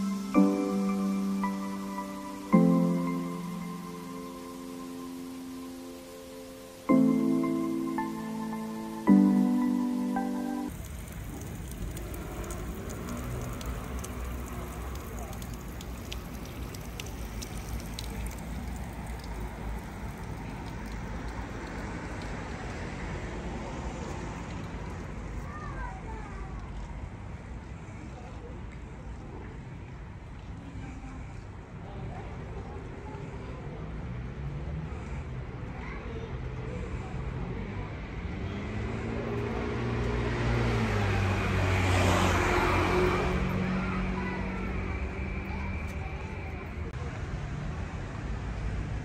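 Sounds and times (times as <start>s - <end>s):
faint ticks: 10.7s - 22.8s.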